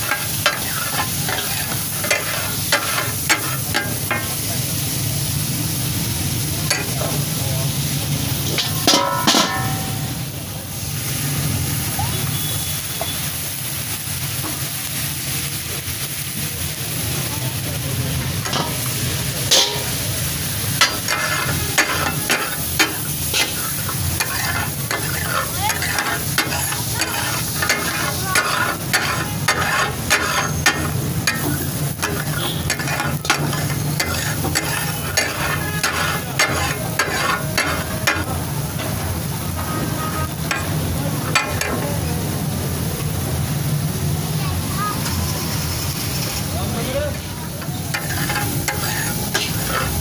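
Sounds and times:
metal spatulas clacking on griddle: 0.0 - 4.3, 6.7 - 7.1, 8.5 - 10.0, 18.4 - 18.8, 19.5 - 20.0, 20.8 - 39.0, 40.5 - 40.7, 41.3 - 41.8, 47.6 - 50.0
fish sizzling on a griddle: 0.0 - 50.0.

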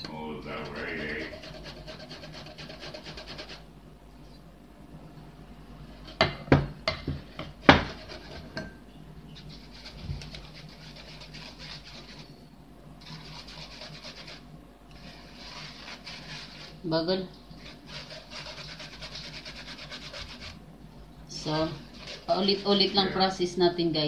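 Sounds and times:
spoon scraping wire-mesh sieve: 0.4 - 3.6, 9.4 - 12.4, 13.0 - 20.6, 21.4 - 23.4.

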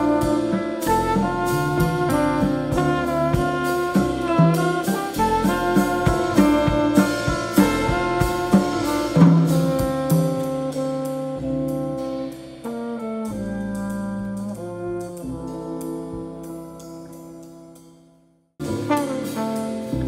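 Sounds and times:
trombone sustained chords: 0.0 - 12.4
drum groove: 0.0 - 17.4, 18.6 - 20.0
small jazz group playing: 0.0 - 20.0.

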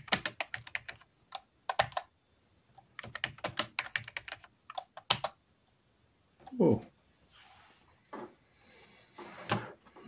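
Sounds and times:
typing on computer keyboard: 0.0 - 2.1, 3.0 - 5.4.

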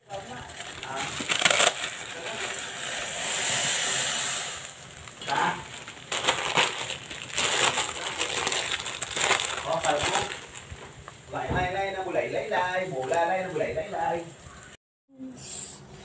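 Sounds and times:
plastic packet crinkling: 0.0 - 3.8, 4.5 - 11.2
water boiling: 0.0 - 14.8.

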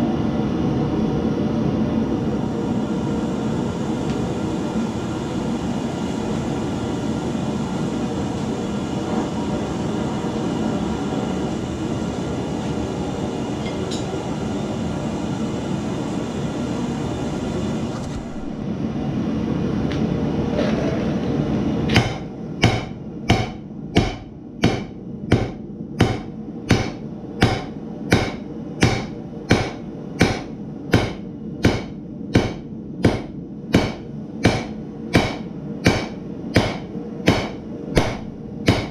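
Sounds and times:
gas forge burner roaring: 0.0 - 38.9
hammer striking steel on anvil: 21.9 - 38.9.

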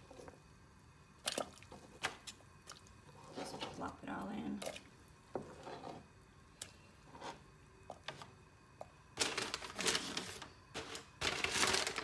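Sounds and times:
loud rustling and crinkling: 9.2 - 12.0.

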